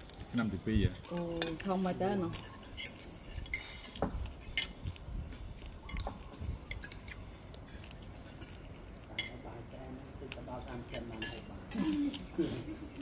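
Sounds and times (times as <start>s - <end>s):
cutlery and dishes clinking: 10.6s - 12.3s.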